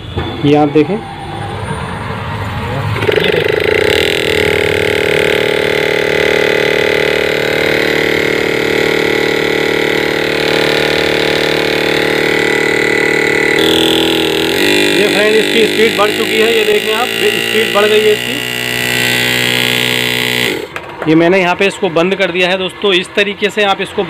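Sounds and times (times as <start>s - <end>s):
refrigerator compressor humming: 2.9s - 20.8s.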